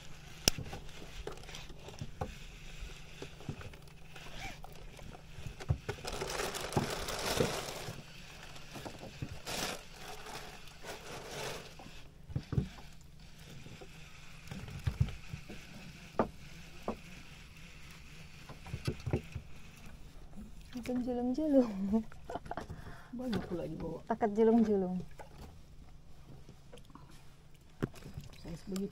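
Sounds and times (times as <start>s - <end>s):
low steady hum: 0.0s - 28.9s
knocks and scrapes against boat: 0.2s - 21.5s.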